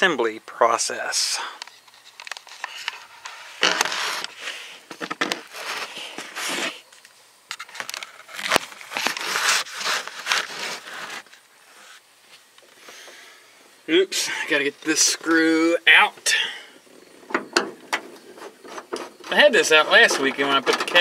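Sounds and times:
camera handling rustling: 0:01.6 - 0:06.7, 0:07.5 - 0:11.4.

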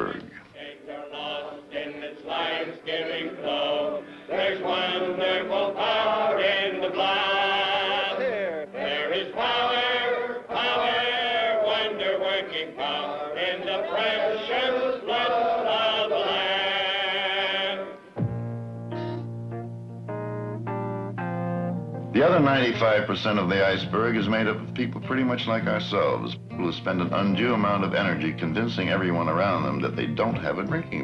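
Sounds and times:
men singing together: 0:00.6 - 0:18.0
guitar music: 0:04.0 - 0:10.5, 0:17.9 - 0:31.0.

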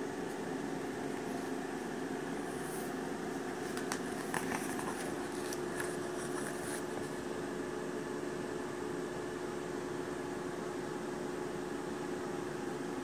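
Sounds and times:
steady hum with faint tone: 0:00.0 - 0:13.0
glossy pages turning: 0:03.5 - 0:07.3.

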